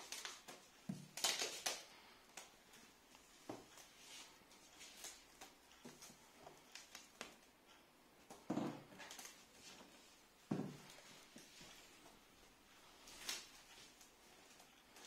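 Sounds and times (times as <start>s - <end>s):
plastic film crinkling: 0.0s - 2.5s, 13.0s - 15.0s.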